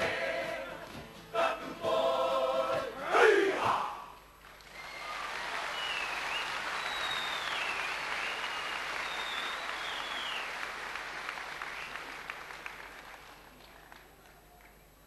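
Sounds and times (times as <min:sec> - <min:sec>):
audience applauding: 0:04.4 - 0:14.9
shrill whistles: 0:04.8 - 0:10.6.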